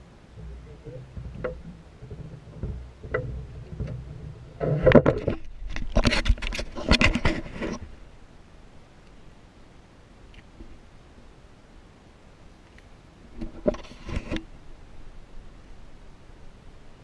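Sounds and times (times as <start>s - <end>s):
low rumble: 0.0s - 5.7s
camera handling knocks and rubbing: 1.2s - 7.8s
faint clicks: 12.6s - 12.9s.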